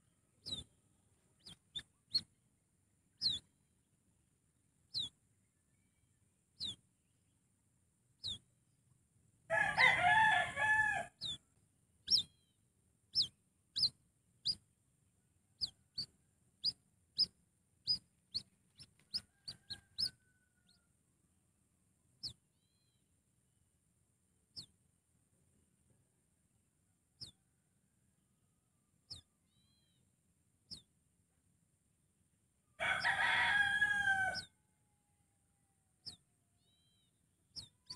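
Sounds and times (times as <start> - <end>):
birds whistling: 3.2 - 3.4, 4.9 - 5.1.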